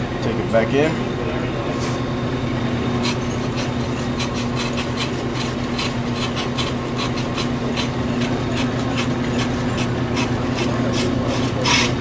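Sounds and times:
lathe humming: 0:00.0 - 0:12.0
cutting bits scraping rotor: 0:03.0 - 0:12.0.

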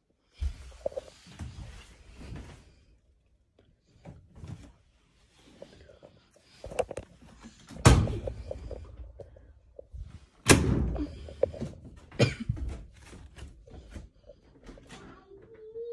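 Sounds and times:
loud thunks: 0:07.7 - 0:08.6, 0:10.4 - 0:11.1.

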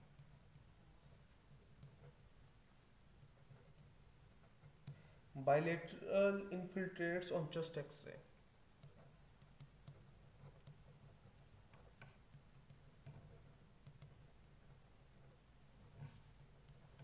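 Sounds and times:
low steady hum: 0:00.0 - 0:17.0
pen writing on paper: 0:08.8 - 0:17.0.

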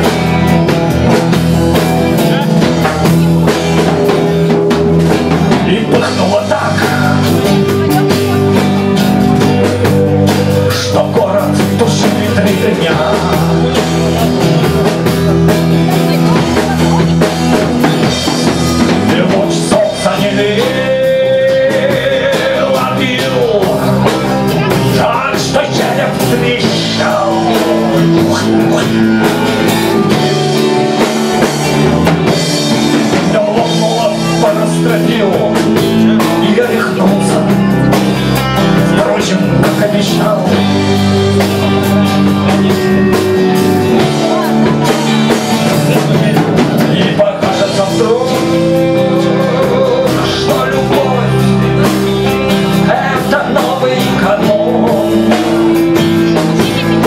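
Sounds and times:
acoustic guitar: 0:00.0 - 0:57.0
drum kit: 0:00.0 - 0:57.0
man singing: 0:00.0 - 0:57.0.

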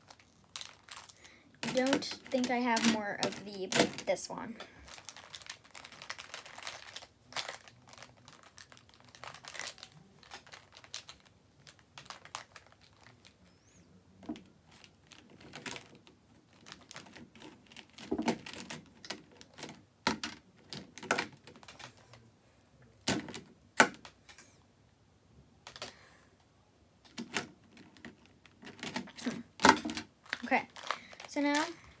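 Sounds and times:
plastic markers clicking and rattling: 0:00.1 - 0:04.1, 0:27.0 - 0:31.8.

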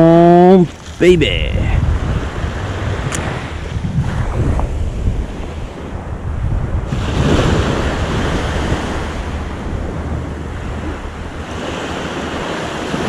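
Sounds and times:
wind rumbling on microphone: 0:00.0 - 0:13.0
small surf breaking on sand: 0:06.9 - 0:09.5.

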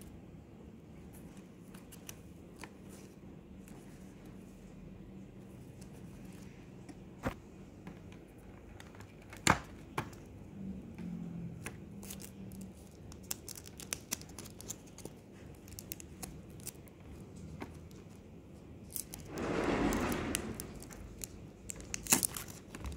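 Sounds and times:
plastic sticker sheets crinkling: 0:12.0 - 0:18.2, 0:20.8 - 0:22.9.

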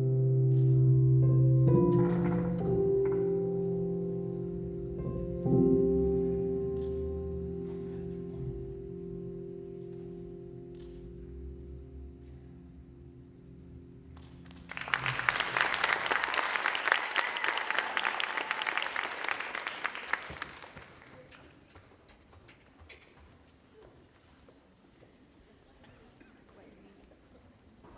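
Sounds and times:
audience applause: 0:14.5 - 0:21.7.

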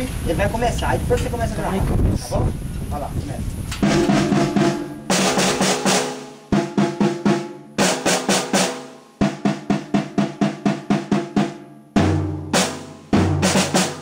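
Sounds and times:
marching snare drums: 0:03.8 - 0:14.0.

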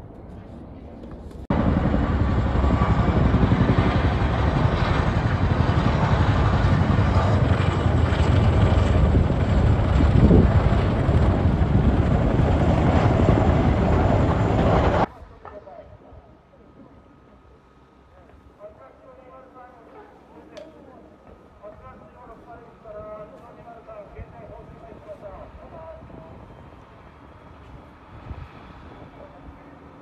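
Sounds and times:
helicopter rotors beating: 0:01.2 - 0:15.1.

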